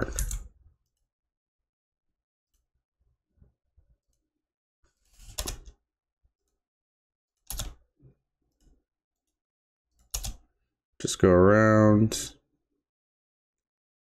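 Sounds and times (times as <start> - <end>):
computer mouse clicks: 5.2 - 5.8, 7.4 - 7.8, 10.0 - 10.4.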